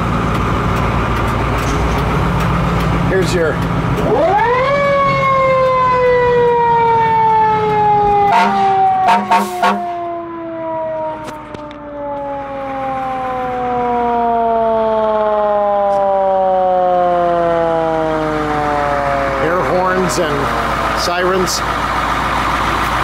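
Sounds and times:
fire truck siren winding down: 0.0s - 23.0s
air horn blasts: 8.2s - 10.0s.

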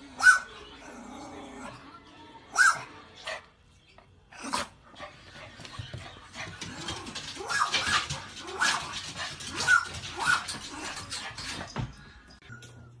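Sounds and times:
dog whining and yipping: 9.6s - 10.6s.

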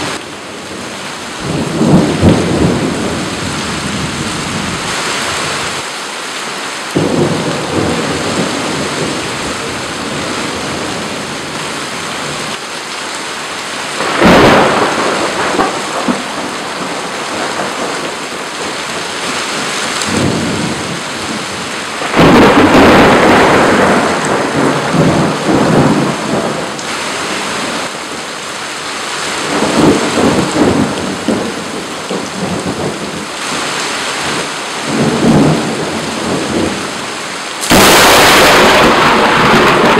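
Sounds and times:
heavy rain pouring: 0.0s - 39.9s
thunder claps and rolls: 1.4s - 4.2s, 14.0s - 18.8s, 19.9s - 26.9s, 29.4s - 33.2s, 34.3s - 36.8s, 37.6s - 39.9s.

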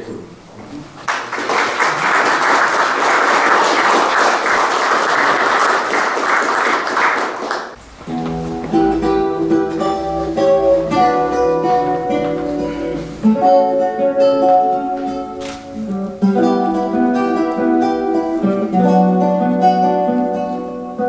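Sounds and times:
audience applauding: 1.0s - 7.8s
music: 8.0s - 21.0s.

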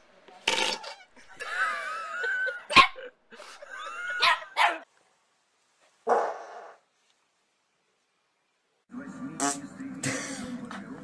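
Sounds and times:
dog barking and growling: 4.2s - 4.9s, 6.0s - 6.8s.

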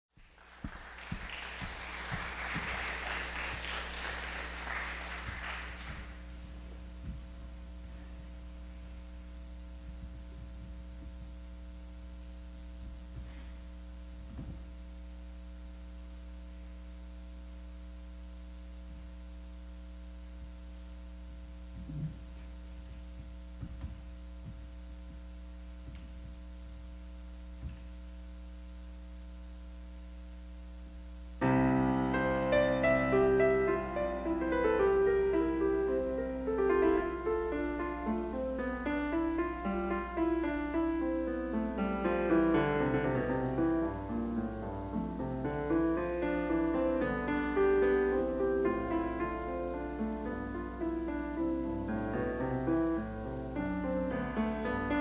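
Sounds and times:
audience applause: 0.2s - 6.3s
electrical mains hum: 0.2s - 55.0s
piano: 0.5s - 11.8s, 31.3s - 55.0s
faint knocks: 21.8s - 26.4s.

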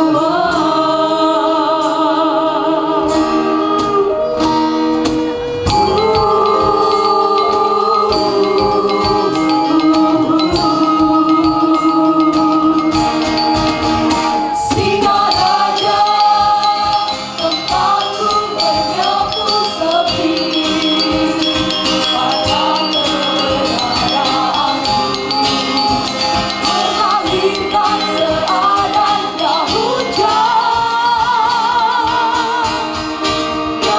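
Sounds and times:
group singing in harmony: 0.0s - 33.9s
steady beat: 4.5s - 11.3s.

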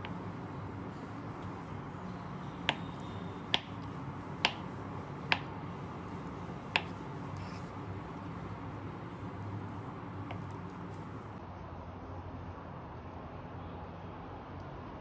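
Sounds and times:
knife tapping cutting board: 2.4s - 5.6s, 6.7s - 7.0s.

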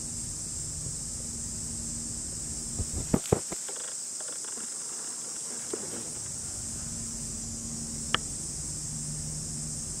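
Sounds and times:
high-pitched insect drone: 0.0s - 10.0s
faint low hum: 4.7s - 10.0s.

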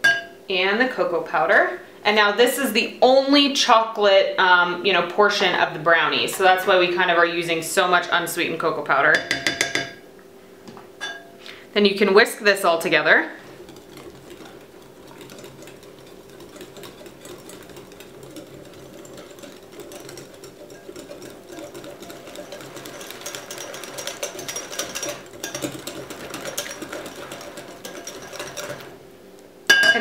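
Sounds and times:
whisk clicking against glass: 13.5s - 29.0s.

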